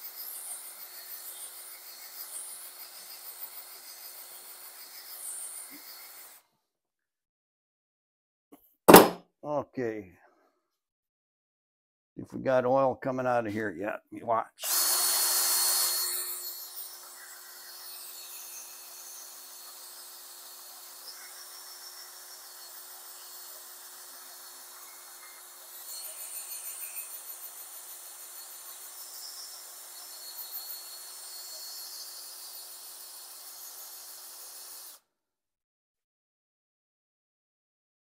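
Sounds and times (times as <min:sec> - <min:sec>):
cordless drill whirring: 0:14.6 - 0:25.7.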